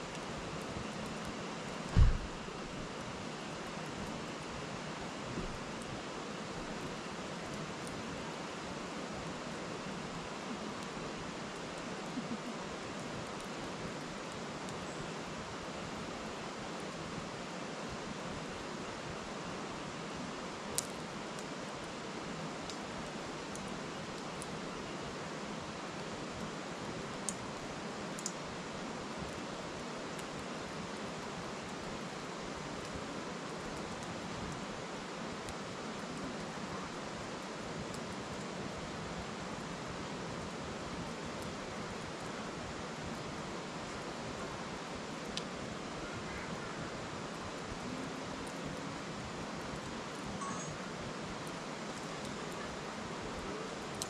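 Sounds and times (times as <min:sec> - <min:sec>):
river flowing over stones: 0:00.0 - 0:54.0
wood fire popping: 0:00.1 - 0:03.0, 0:20.7 - 0:21.5.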